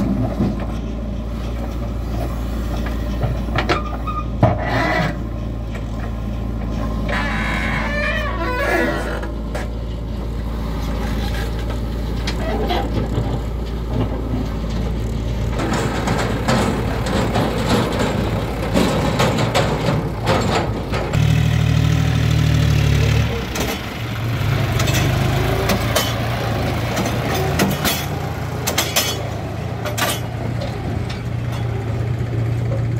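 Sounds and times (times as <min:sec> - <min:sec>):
diesel engines running: 0:00.0 - 0:32.9
metallic clanks and knocks: 0:11.7 - 0:21.3, 0:24.6 - 0:31.9.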